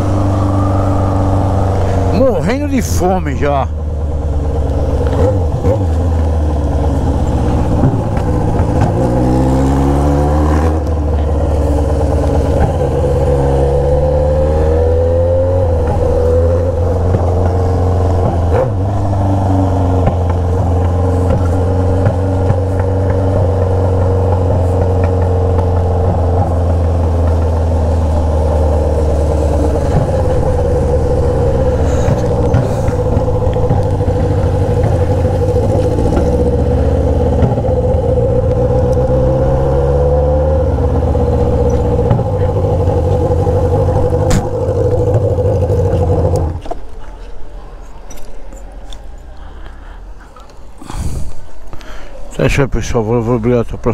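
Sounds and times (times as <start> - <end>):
motorcycle engine revving: 0.0 - 46.9.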